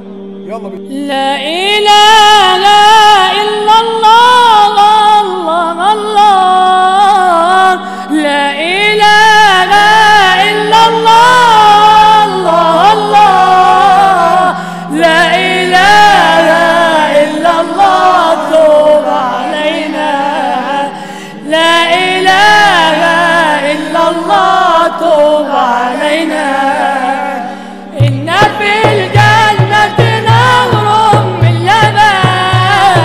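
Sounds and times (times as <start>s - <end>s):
mixed choir singing: 1.2s - 33.0s
frame drum beat: 28.0s - 33.0s.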